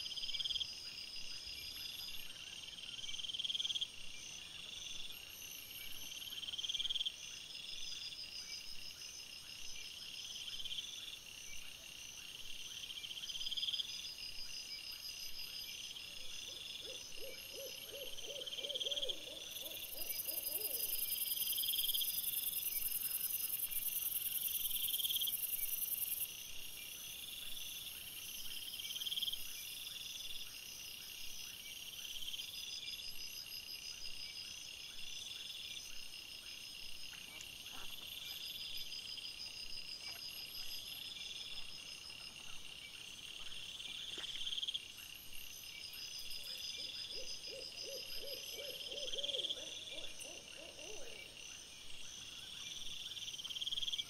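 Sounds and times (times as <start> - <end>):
insects trilling: 12.7 - 30.9.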